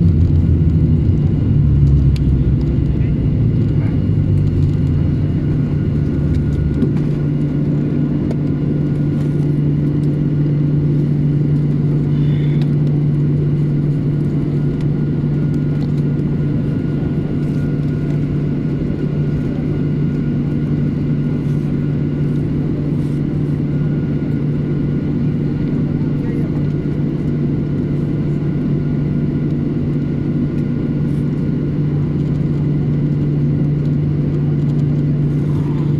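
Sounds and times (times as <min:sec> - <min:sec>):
thin steady whine: 0:00.0 - 0:26.5
deep rumble: 0:00.0 - 0:35.9
jet engine drone: 0:00.0 - 0:35.9.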